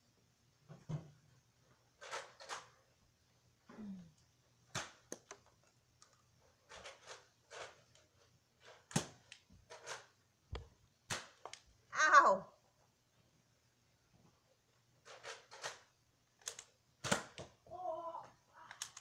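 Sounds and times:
foam dart blaster firing: 17.0s - 17.4s.

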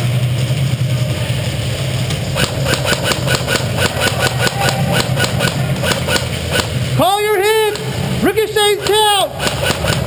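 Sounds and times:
steady low hum: 0.0s - 10.0s
airsoft gun firing full-auto: 2.4s - 6.7s.

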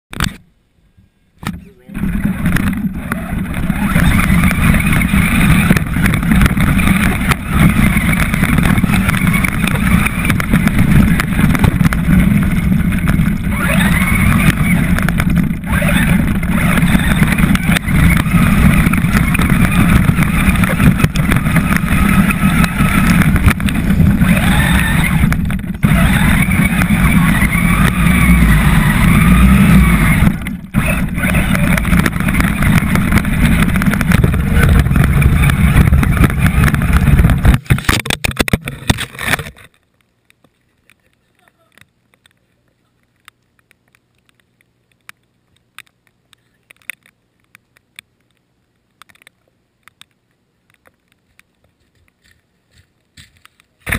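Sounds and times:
tyres rumbling on gravel: 1.5s - 47.2s
toy car motor whining: 1.9s - 37.9s.

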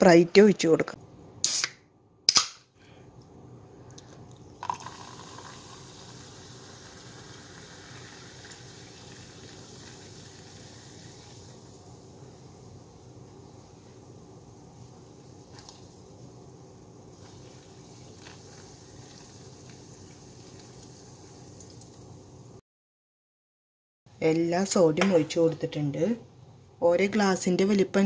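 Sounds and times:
soda can opening hiss: 1.4s - 2.6s
soda pouring and fizzing: 4.2s - 22.4s.

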